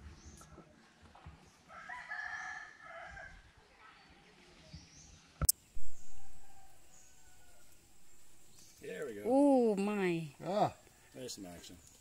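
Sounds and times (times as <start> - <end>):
rooster crowing: 1.7 - 3.4, 5.9 - 8.4.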